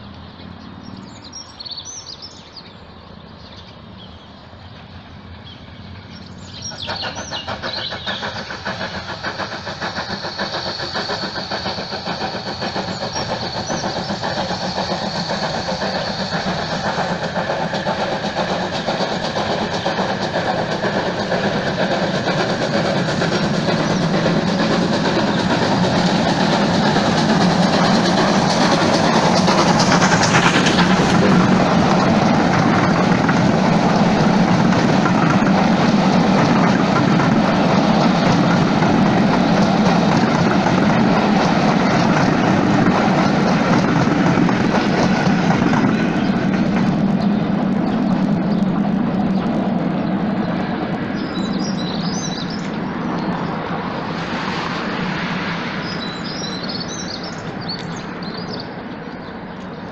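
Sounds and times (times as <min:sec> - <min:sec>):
train rolling past on rails: 0:00.0 - 0:59.9
birds chirping: 0:00.1 - 0:59.9.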